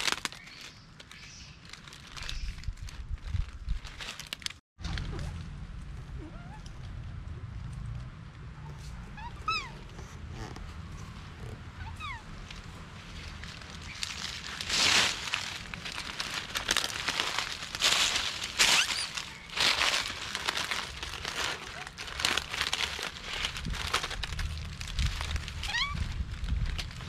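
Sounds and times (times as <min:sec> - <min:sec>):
dry leaves rustling and crunching: 0:00.0 - 0:05.6, 0:11.2 - 0:27.0.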